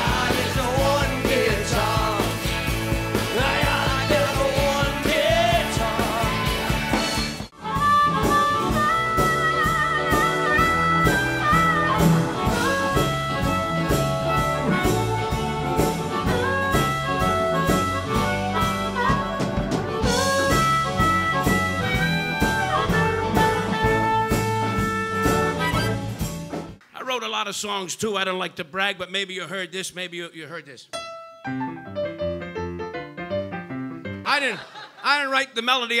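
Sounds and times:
drums steady beat: 0.0s - 26.8s
guitars: 0.0s - 26.8s
rock song: 0.0s - 26.8s
saxophone: 3.6s - 26.5s
harmonica playing bent notes: 7.0s - 26.3s.

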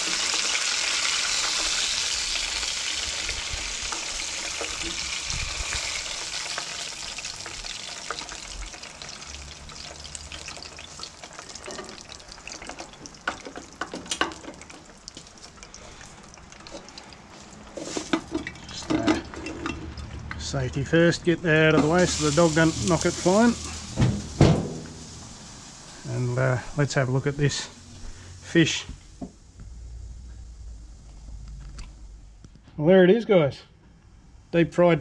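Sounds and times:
oil sizzling in a pot: 0.0s - 20.2s, 21.6s - 28.4s.

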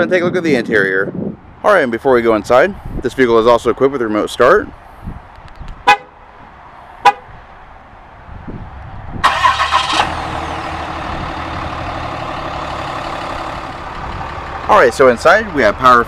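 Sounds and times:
car horn chirp: 5.9s - 6.2s, 7.0s - 7.3s
diesel engine starting and idling: 9.2s - 16.0s.

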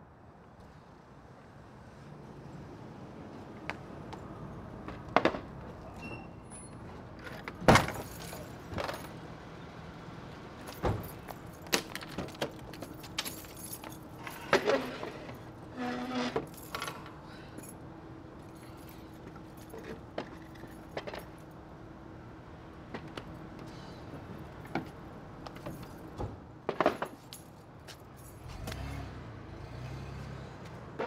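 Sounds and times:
short squeak: 6.0s - 6.8s, 15.8s - 16.4s.

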